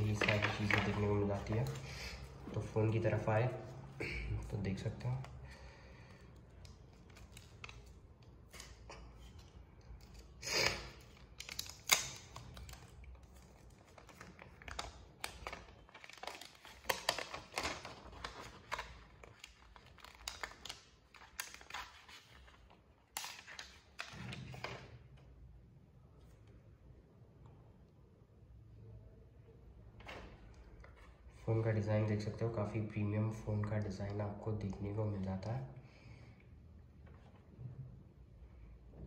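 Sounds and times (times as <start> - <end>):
protective film crinkling: 0.0 - 2.8, 4.7 - 24.8
film ripping: 10.0 - 24.3.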